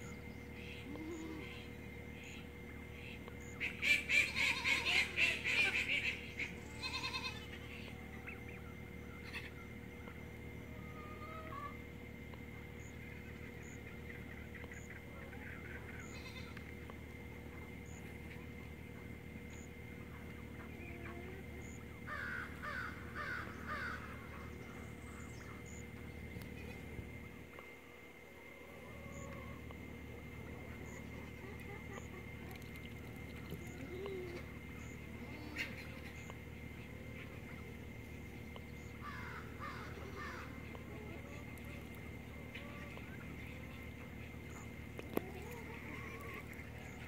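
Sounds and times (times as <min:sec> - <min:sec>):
turkey calling: 0:03.0 - 0:11.8, 0:19.6 - 0:26.8, 0:30.4 - 0:47.0.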